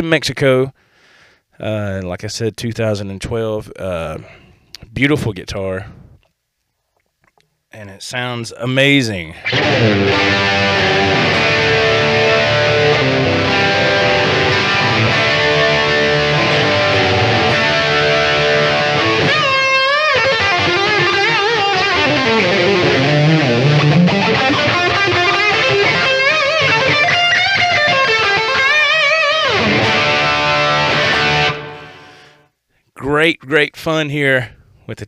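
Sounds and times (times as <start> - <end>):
electric guitar playing: 9.4 - 32.4.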